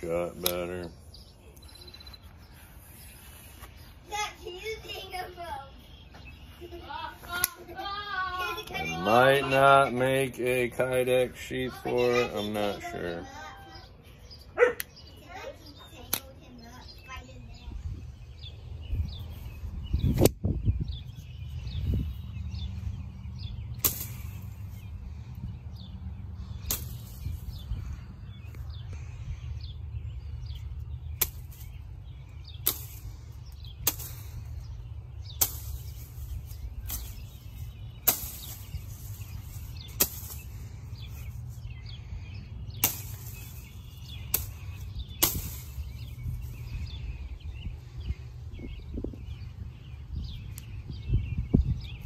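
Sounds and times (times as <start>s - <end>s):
knife chopping through branches: 23.7s - 24.9s, 26.5s - 27.7s, 31.1s - 31.8s, 32.4s - 41.7s, 42.7s - 46.6s.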